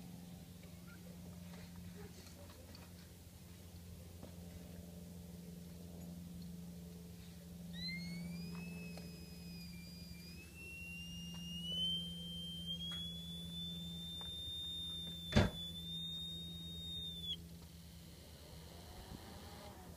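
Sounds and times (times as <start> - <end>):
steady low hum: 0.0 - 19.9
fan high whistle: 7.6 - 17.5.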